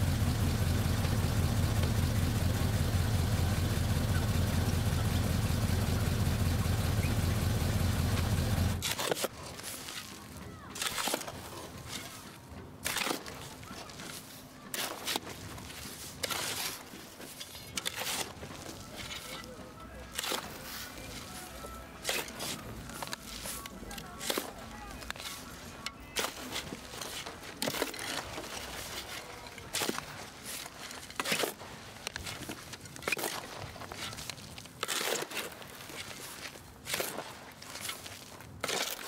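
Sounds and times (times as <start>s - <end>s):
truck engine idling: 0.0s - 8.8s
shovel digging stony earth: 8.8s - 39.0s.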